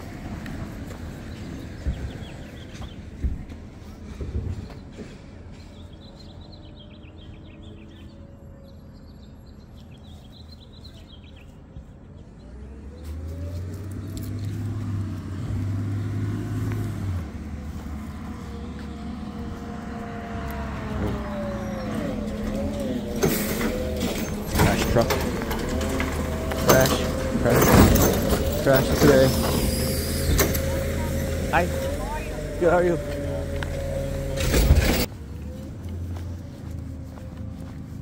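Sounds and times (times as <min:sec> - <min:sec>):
birds chirping: 0:00.0 - 0:38.0
garbage truck engine whining: 0:12.8 - 0:36.1.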